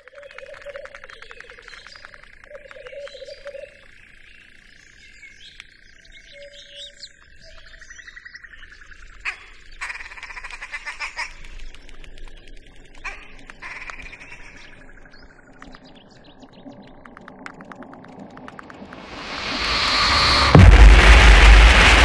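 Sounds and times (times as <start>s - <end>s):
rapid clicking pulses: 0.0s - 3.2s, 10.2s - 22.0s.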